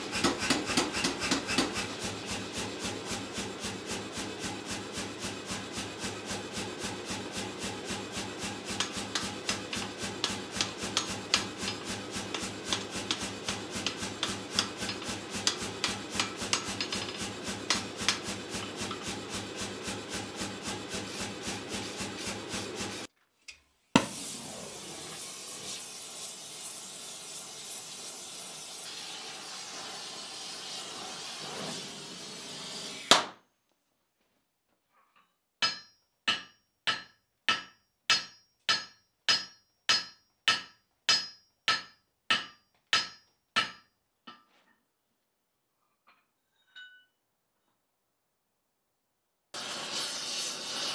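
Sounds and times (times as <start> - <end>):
hammer striking iron on anvil: 0.1 - 1.9, 8.7 - 19.1, 35.6 - 44.4.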